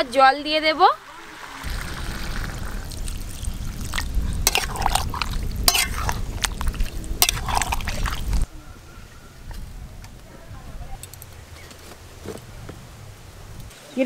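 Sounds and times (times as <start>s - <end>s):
curry sloshing: 0.9s - 8.5s
water poured into metal pan: 1.1s - 8.4s
low rumble: 1.6s - 11.6s
ladle scraping and clinking pan: 4.4s - 6.2s, 7.2s - 8.1s.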